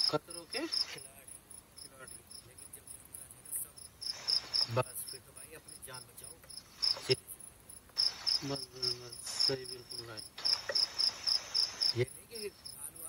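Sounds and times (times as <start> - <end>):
crickets chirping: 0.0 - 13.0
rustling rush: 8.0 - 12.0.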